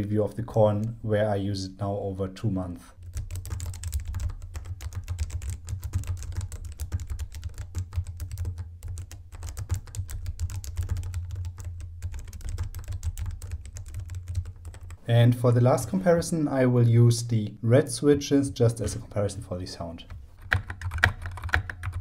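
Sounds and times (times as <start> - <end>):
mechanical keyboard typing: 3.0 - 15.0, 20.4 - 22.0.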